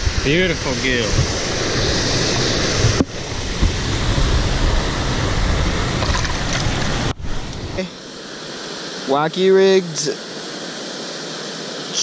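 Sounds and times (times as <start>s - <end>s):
wind buffeting microphone: 0.0s - 7.8s
moving pond water: 0.0s - 12.0s.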